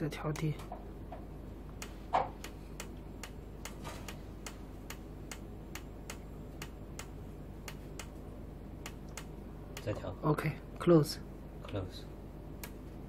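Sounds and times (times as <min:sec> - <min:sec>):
low steady hum: 0:00.0 - 0:13.0
steady even ticking: 0:00.3 - 0:10.2.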